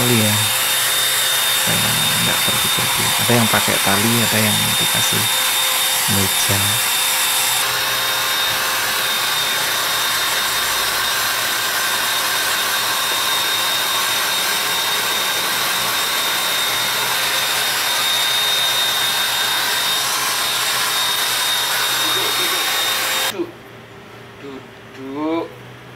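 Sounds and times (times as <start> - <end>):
hair dryer whining: 0.0 - 23.4.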